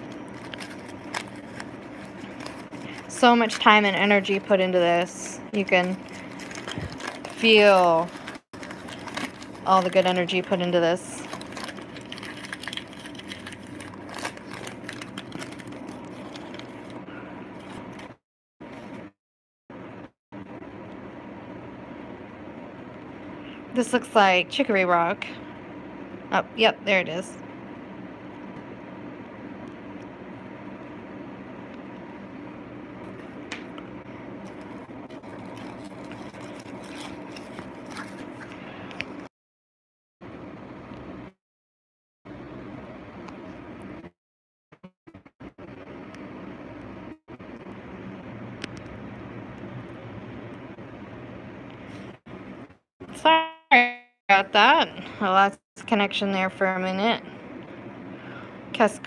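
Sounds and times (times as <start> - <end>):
packets rustling in cardboard box: 0.0 - 3.1, 5.8 - 17.0, 35.1 - 38.5
wrapping paper crinkling: 0.0 - 4.4, 5.6 - 18.1, 34.4 - 39.3
steady mechanical hum: 0.0 - 39.3, 40.2 - 41.4, 42.3 - 44.2, 45.1 - 59.0.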